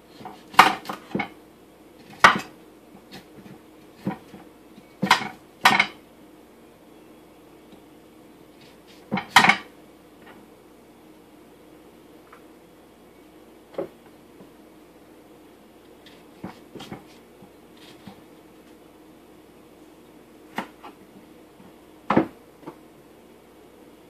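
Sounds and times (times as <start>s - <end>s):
faint steady hum: 0.0s - 24.0s
knife cutting fruit on counter: 2.0s - 4.4s, 17.8s - 18.2s.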